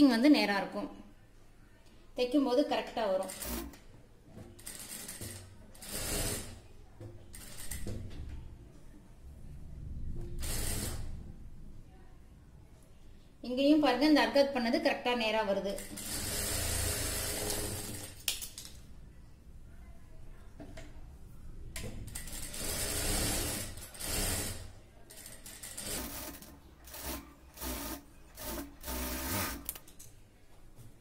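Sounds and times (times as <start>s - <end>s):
sewing machine stitching: 3.2s - 3.8s, 4.6s - 6.6s, 10.4s - 11.1s, 15.8s - 18.2s, 22.1s - 29.8s.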